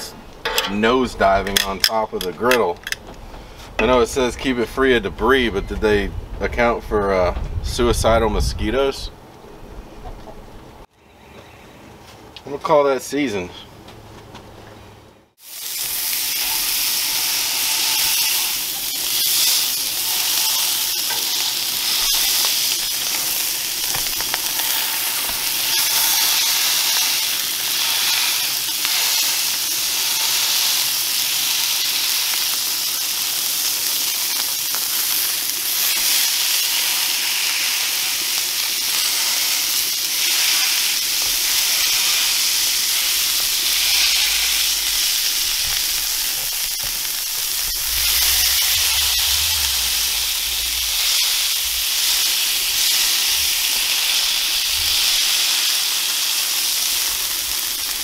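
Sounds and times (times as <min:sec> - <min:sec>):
burger patties sizzling on griddle: 0:15.4 - 0:58.0.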